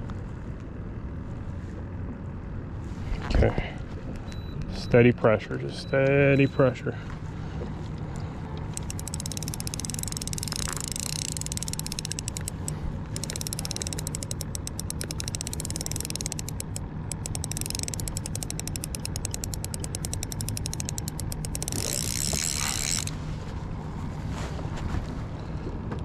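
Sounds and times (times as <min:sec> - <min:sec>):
fishing reel clicking rapidly: 0:08.8 - 0:23.1.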